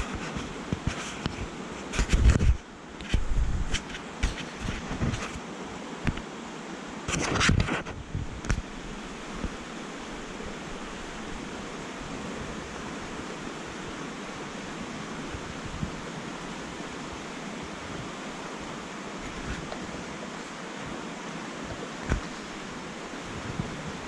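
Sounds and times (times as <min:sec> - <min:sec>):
creek water rushing: 0:08.4 - 0:24.0.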